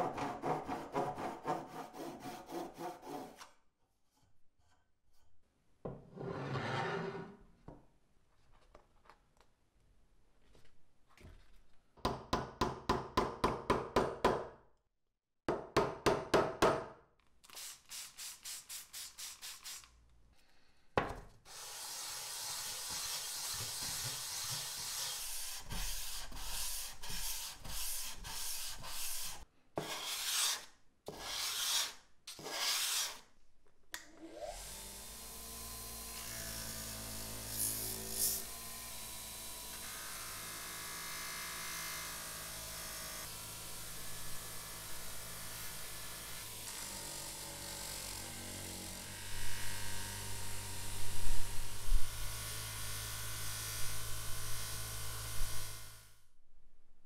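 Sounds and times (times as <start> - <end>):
hatchet head rubbed on sandpaper: 22.8 - 33.2.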